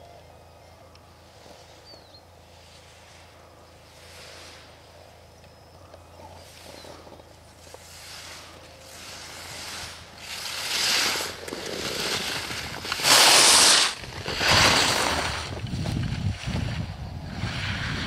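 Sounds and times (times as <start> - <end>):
skis carving on hard snow: 6.4 - 18.0.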